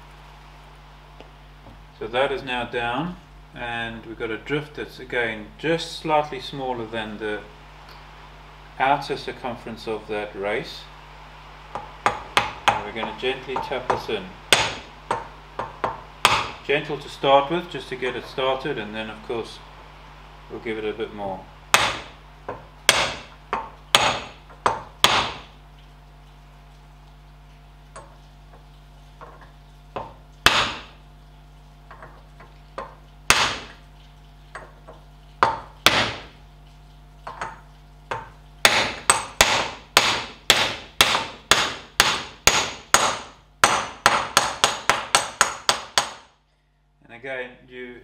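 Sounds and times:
mallet tapping steel drift: 11.7 - 16.6, 21.7 - 25.5, 29.2 - 31.0, 34.5 - 36.4, 37.2 - 46.3.

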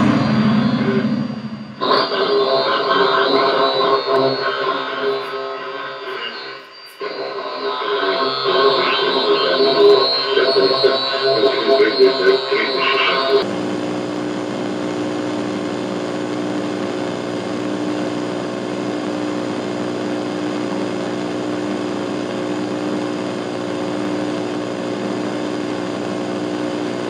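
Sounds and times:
music: 0.0 - 2.7.

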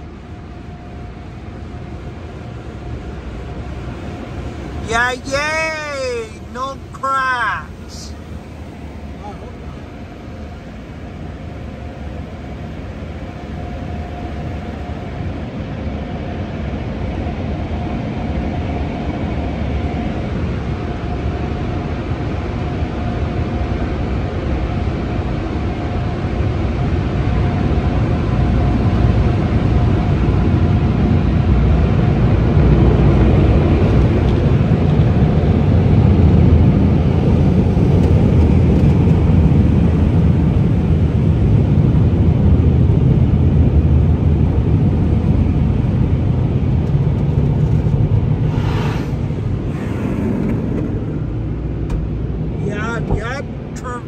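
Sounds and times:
car wash water spray and machinery: 0.0 - 54.0.

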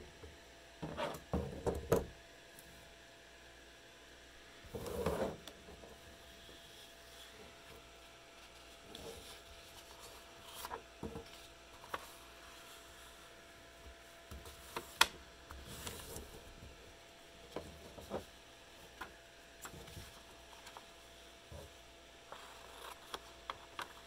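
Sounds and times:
paper rustling and sliding: 8.4 - 13.2, 15.6 - 16.4.

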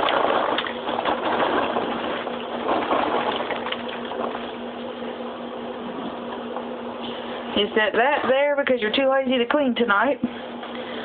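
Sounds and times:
paper bag rustling: 0.0 - 4.5
popcorn rattling into strainer: 0.0 - 4.6
low hum: 0.0 - 8.8.

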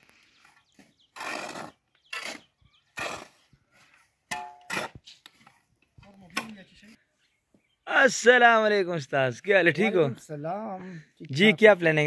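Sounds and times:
shovels scraping into sand: 0.1 - 5.7.

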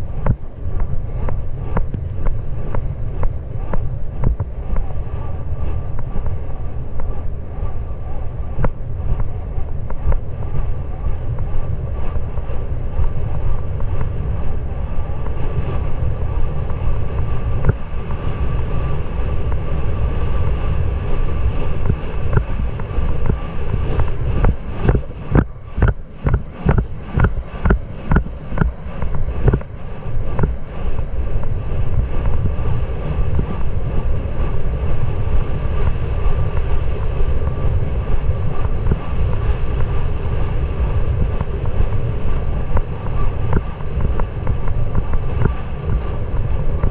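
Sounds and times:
wind buffeting microphone: 0.0 - 46.9
horse galloping thumps: 21.6 - 30.7.

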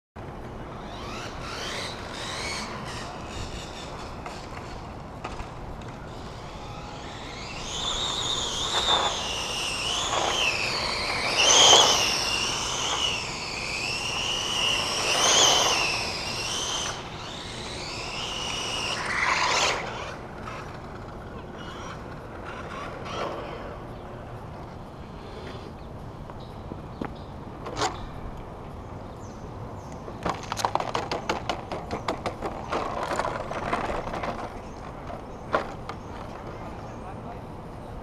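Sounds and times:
electric motor whining: 0.6 - 23.7.

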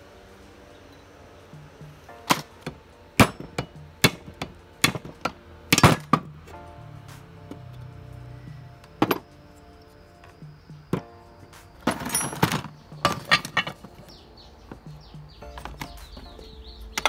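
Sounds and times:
quiet background music: 0.0 - 17.0
metal knocks and clanks: 9.0 - 9.3, 11.8 - 16.3.

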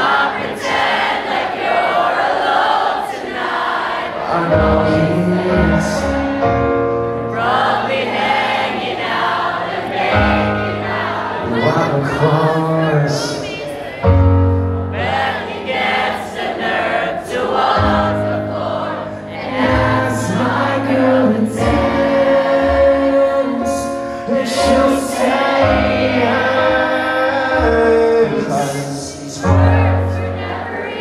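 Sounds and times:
crowd singing along: 0.0 - 31.0
lead vocal singing: 0.0 - 31.0
live band playing ballad: 4.4 - 15.5, 17.8 - 30.9.

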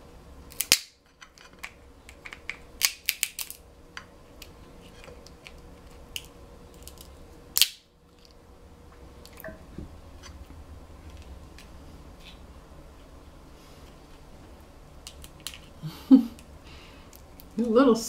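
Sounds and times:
crab shell cracking: 0.5 - 8.4, 15.0 - 15.8.

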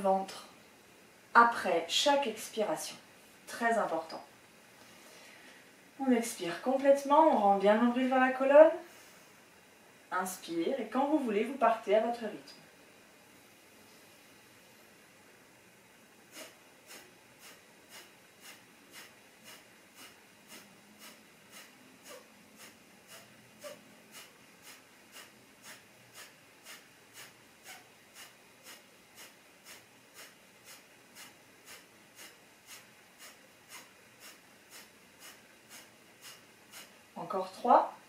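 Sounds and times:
sharp nasal exhalations: 16.3 - 37.0.

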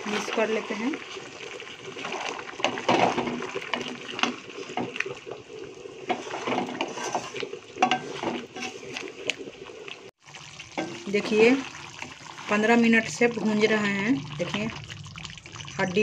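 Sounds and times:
wooden spatula scraping a pan: 0.0 - 5.1, 6.0 - 9.4, 10.8 - 13.1.

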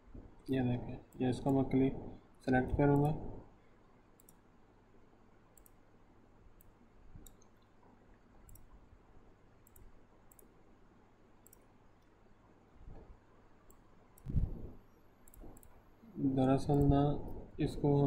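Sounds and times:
computer mouse clicks: 2.8 - 3.2, 4.1 - 4.4, 5.5 - 5.8, 6.6 - 7.8, 8.4 - 8.7, 9.6 - 10.6, 11.4 - 12.2, 12.9 - 15.8, 16.7 - 17.0.

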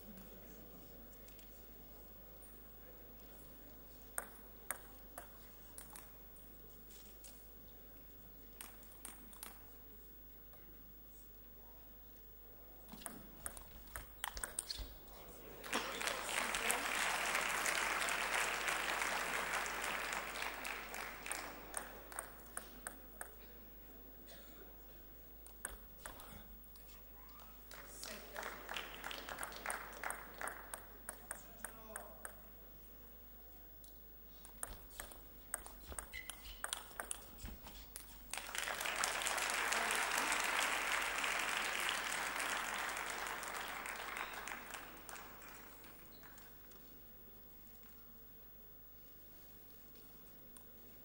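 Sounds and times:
table tennis ball clicking: 4.2 - 6.1, 13.0 - 14.8, 34.6 - 37.3
audience applause: 15.6 - 22.2, 27.8 - 30.7, 38.3 - 46.0.

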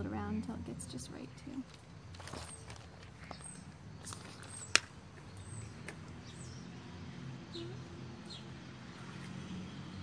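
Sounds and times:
low outdoor hum: 0.0 - 10.0
faint bird chirps: 2.3 - 8.6.

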